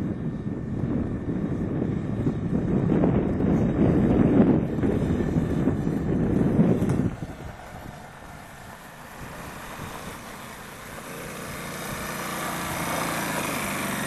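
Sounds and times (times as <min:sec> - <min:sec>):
small quad engine running: 0:00.0 - 0:14.0
wind buffeting microphone: 0:00.0 - 0:14.0.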